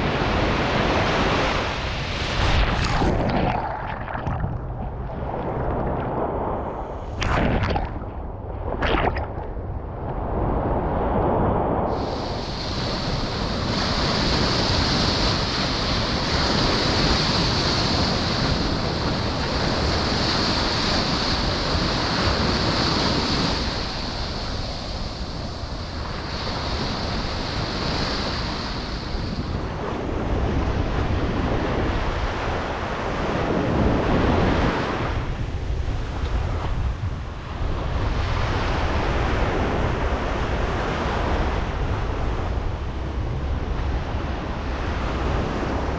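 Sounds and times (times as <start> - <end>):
wind rumbling on microphone: 0.0 - 45.9
water splashing close: 2.2 - 9.8
small waves breaking on shore: 11.9 - 42.7.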